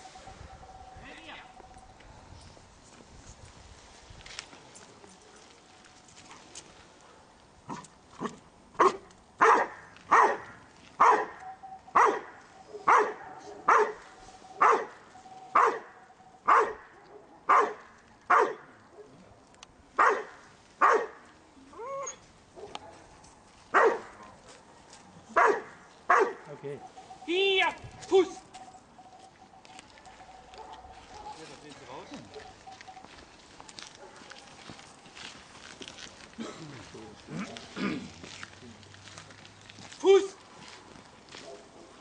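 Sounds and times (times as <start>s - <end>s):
dog barking insistently: 7.7s - 19.2s, 20.0s - 21.2s, 22.6s - 23.1s, 23.7s - 24.2s, 25.3s - 26.5s, 30.1s - 31.5s, 33.9s - 34.4s, 41.4s - 42.0s.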